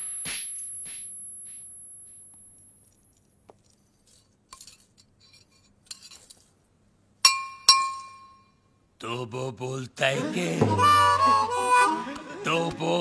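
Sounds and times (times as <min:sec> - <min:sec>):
slap sound effect ringing: 0:00.0 - 0:01.6.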